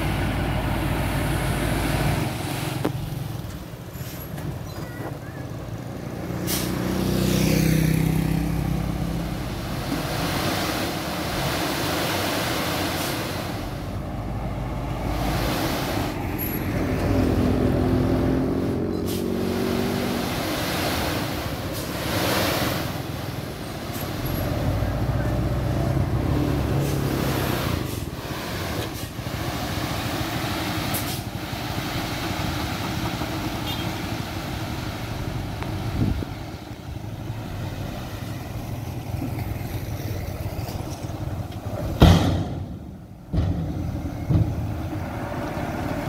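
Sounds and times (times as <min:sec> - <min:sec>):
diesel truck engine under load: 0:00.0 - 0:46.0
short sharp hisses: 0:06.5 - 0:06.8.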